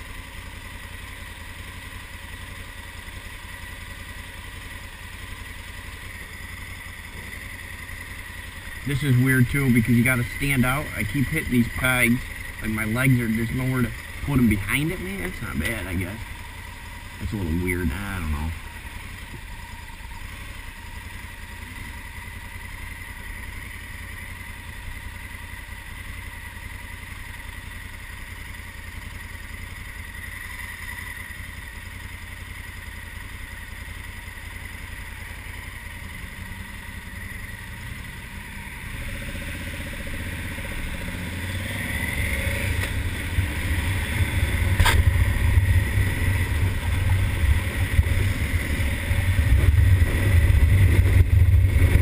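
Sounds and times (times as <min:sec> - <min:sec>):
motorcycle engine idling and revving: 0:00.0 - 0:52.0
sharp click: 0:44.7 - 0:45.1.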